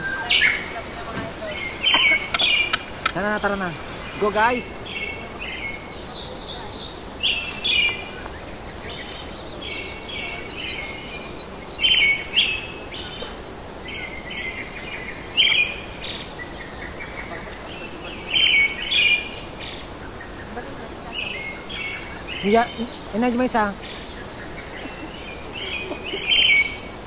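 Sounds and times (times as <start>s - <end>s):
bird chirping: 0.0s - 27.0s
steady background hiss: 0.0s - 27.0s.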